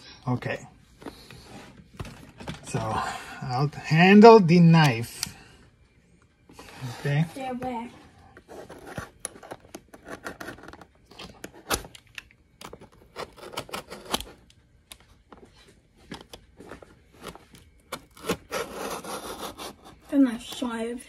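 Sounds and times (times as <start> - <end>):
knife cutting cardboard: 17.1 - 20.1.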